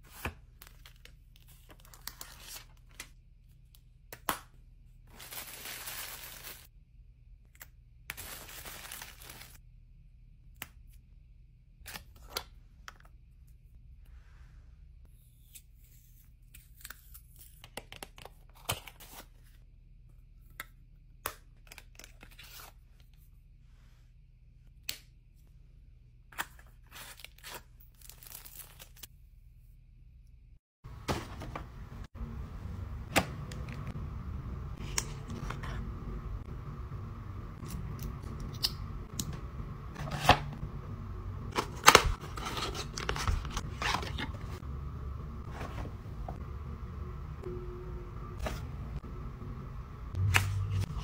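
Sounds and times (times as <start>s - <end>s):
faint steady hum: 31.5s - 51.0s.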